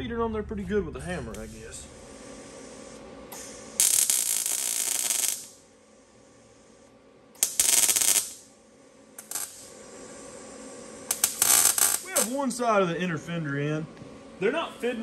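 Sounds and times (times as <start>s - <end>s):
welding arc crackle: 1.3s - 5.6s, 7.4s - 8.5s, 9.2s - 12.7s.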